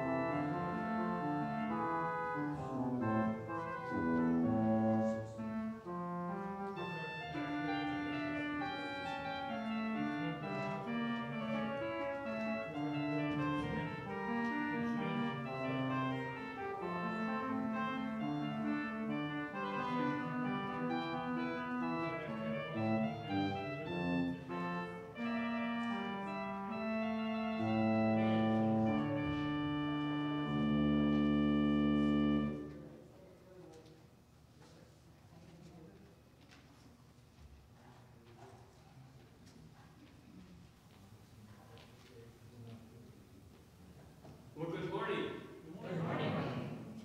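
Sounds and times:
organ playing slow chords: 0.0s - 32.9s.

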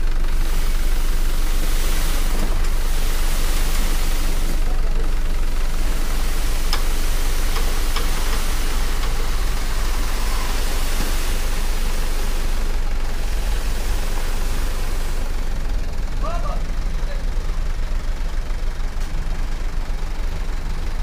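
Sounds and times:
soil sliding from dump truck: 0.3s - 16.1s.

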